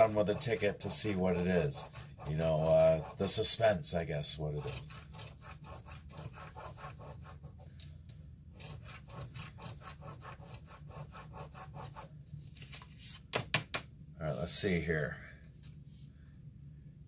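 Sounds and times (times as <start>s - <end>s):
coin scratching lottery ticket: 0.0s - 3.4s, 4.6s - 7.4s.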